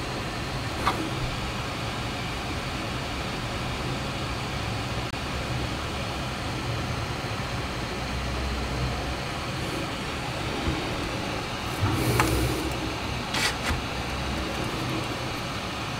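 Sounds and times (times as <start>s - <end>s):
steady low rumble: 5.1s - 15.9s.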